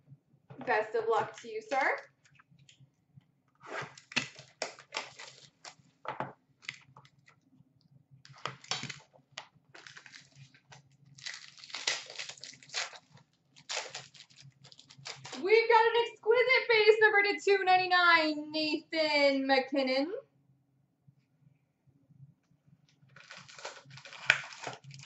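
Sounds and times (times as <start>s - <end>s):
plastic wrapping tearing: 3.9s - 5.8s, 8.3s - 9.1s, 9.8s - 15.4s, 23.1s - 25.0s.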